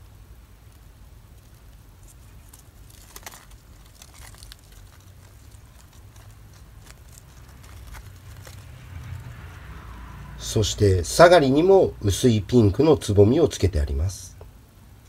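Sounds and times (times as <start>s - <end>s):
artificial petals rustling and ticking: 0.0s - 10.4s
low steady hum: 0.0s - 15.0s.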